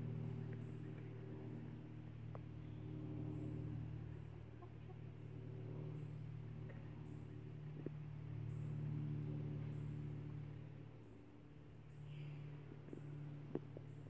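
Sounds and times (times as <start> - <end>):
steady low hum: 0.0 - 14.0
chickens clucking: 4.5 - 5.0.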